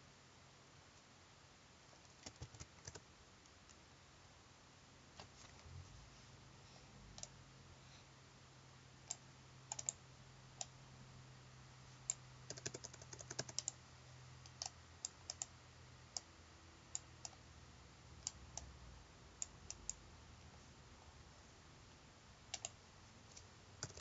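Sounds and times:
faint low hum: 0.0 - 24.0
computer mouse clicks: 7.2 - 7.4, 9.1 - 10.0, 12.0 - 13.8, 14.4 - 15.5, 22.5 - 22.8, 23.4 - 24.0
keyboard key presses: 12.5 - 13.8.

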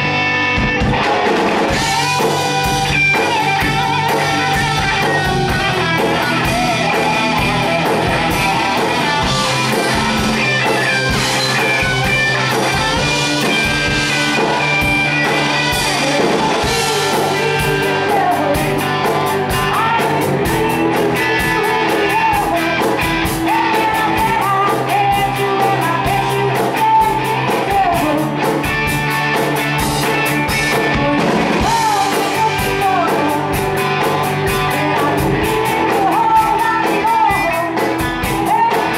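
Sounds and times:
live rock band playing: 0.0 - 38.9
woman singing: 15.7 - 28.5, 30.6 - 33.7, 34.3 - 38.9.

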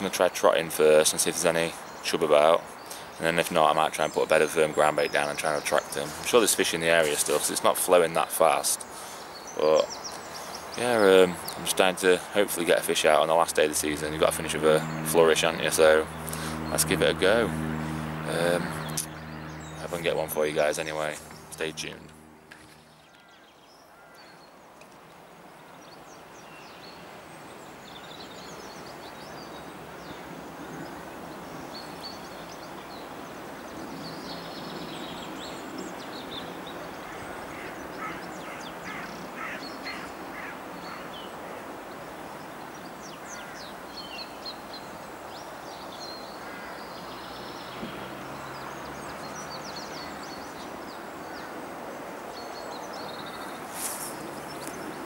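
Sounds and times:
steady background hiss: 0.0 - 19.2
birds chirping: 0.0 - 55.0.

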